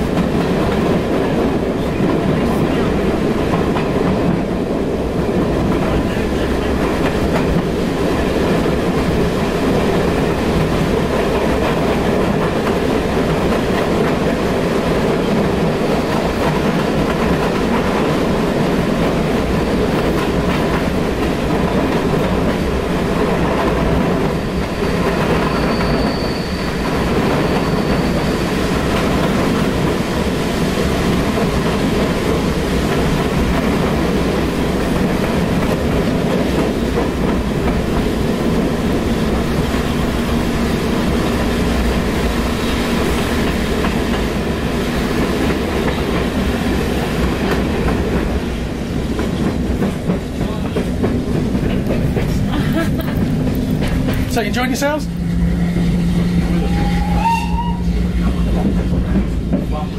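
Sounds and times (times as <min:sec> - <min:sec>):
train carriage rumbling on rails: 0:00.0 - 0:59.9
faint high squeal: 0:24.6 - 0:28.6.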